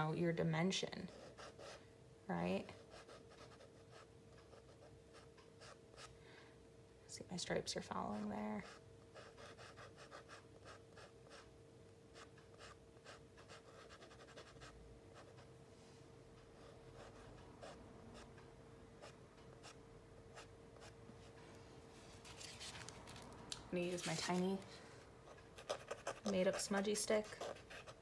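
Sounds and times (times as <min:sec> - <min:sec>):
steady low hum: 0:00.0 - 0:28.0
charcoal scratching on paper: 0:12.1 - 0:15.4, 0:25.6 - 0:28.0.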